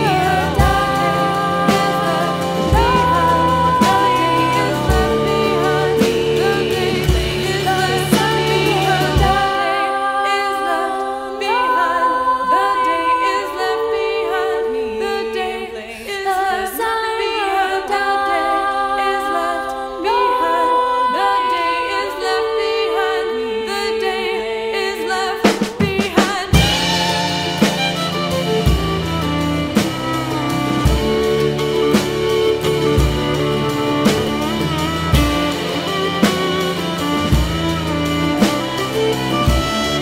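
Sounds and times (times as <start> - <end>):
low bass: 0.0 - 9.5, 26.6 - 40.0
layered singing voices: 0.0 - 40.0.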